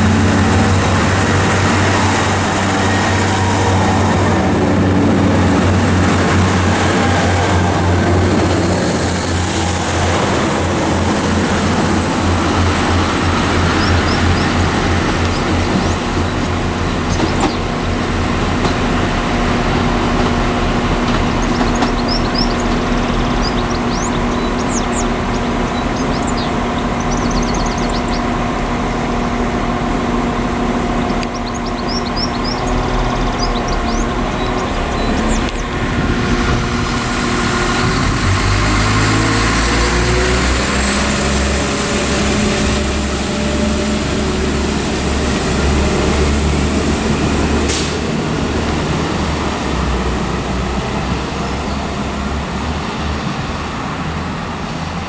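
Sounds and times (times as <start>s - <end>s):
diesel train rumble: 0.0s - 55.0s
humming drone: 0.0s - 55.0s
small birds chirping: 13.7s - 14.6s, 21.3s - 28.4s, 31.0s - 35.7s.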